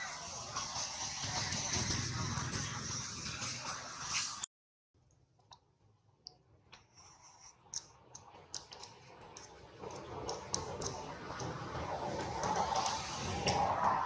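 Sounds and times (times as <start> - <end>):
faint irregular clicks: 5.0 - 13.6.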